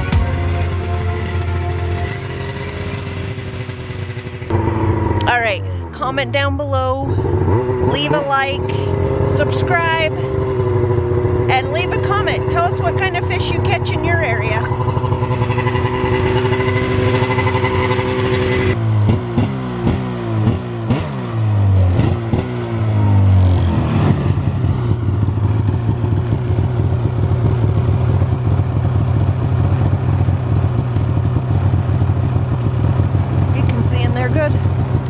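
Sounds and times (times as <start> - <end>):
snowmobile engine revving: 0.0 - 27.8.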